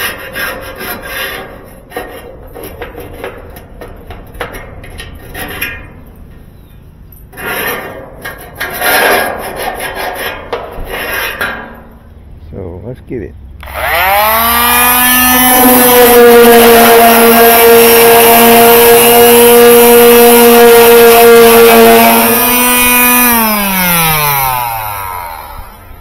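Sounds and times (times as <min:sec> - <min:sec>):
electric sander on metal: 0:13.6 - 0:26.0.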